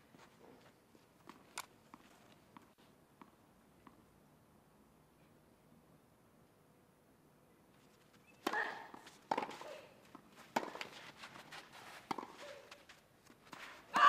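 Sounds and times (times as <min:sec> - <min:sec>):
tennis ball hit by rackets: 0:08.4 - 0:12.9.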